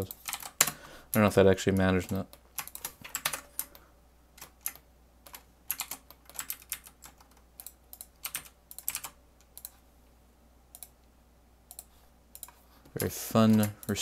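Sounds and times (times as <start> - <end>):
keyboard keys clicking: 4.4 - 9.8, 11.7 - 14.0.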